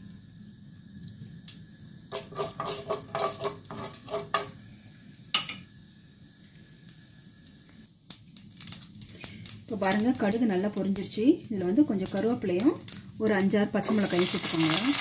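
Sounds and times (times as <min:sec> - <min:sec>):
oil sizzling: 0:00.0 - 0:15.0
wooden spatula scraping pan: 0:02.1 - 0:04.5.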